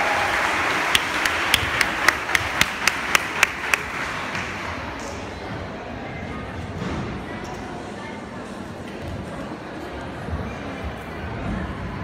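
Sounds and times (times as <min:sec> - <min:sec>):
audience applause: 0:00.0 - 0:04.6
person clapping sharply: 0:00.7 - 0:04.5.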